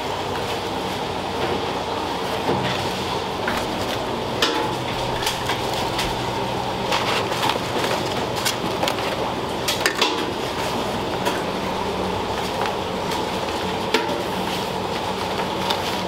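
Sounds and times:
kitchen equipment hum: 0:00.0 - 0:16.0
kitchen utensils clinking: 0:03.4 - 0:09.0.

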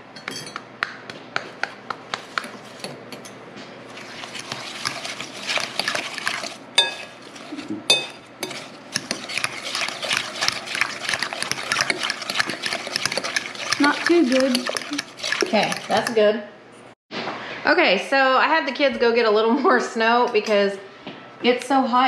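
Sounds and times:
fork scraping slushy ice: 0:03.9 - 0:16.3
fork clinking against bowl: 0:06.8 - 0:07.2, 0:07.9 - 0:16.2.

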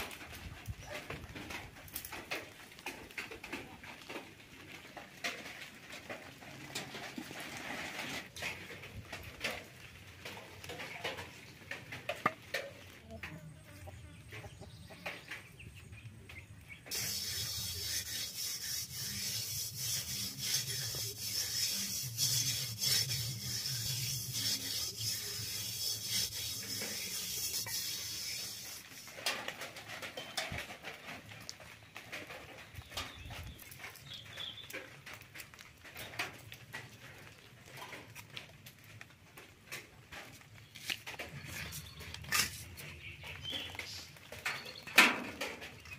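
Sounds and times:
hand rubbing metal pot: 0:16.9 - 0:29.2, 0:41.4 - 0:42.9.

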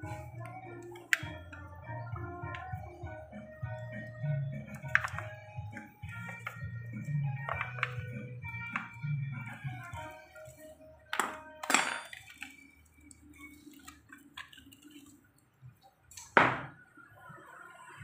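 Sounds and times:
metal tools clinking: 0:11.1 - 0:12.5.

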